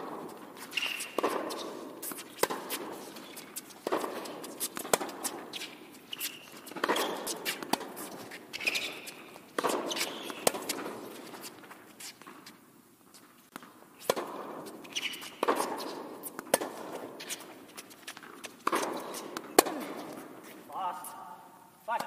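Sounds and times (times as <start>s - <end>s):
racquet hitting tennis ball: 0.0s - 12.4s, 13.5s - 20.5s
footsteps and shoe shuffles: 0.2s - 21.3s
ball bouncing: 0.8s - 2.8s, 3.4s - 5.5s, 6.5s - 11.0s, 13.5s - 17.4s, 18.0s - 20.2s.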